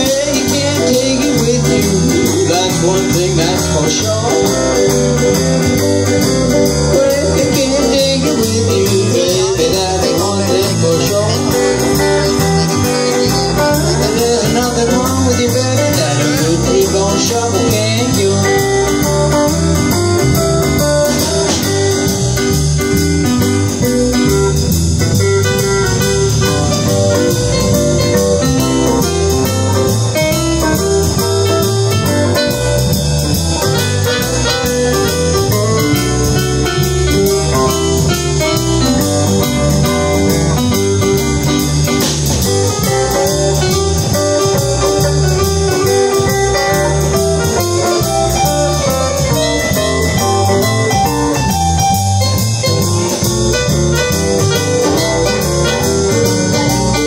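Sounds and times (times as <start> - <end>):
bass: 0.0 - 57.0
drum kit: 0.0 - 57.0
electric guitars: 0.0 - 57.0
keyboard: 0.0 - 57.0.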